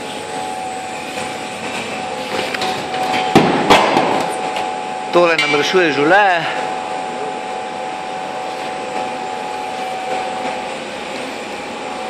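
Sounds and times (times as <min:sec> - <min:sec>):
machine drone with whine: 0:00.0 - 0:12.0.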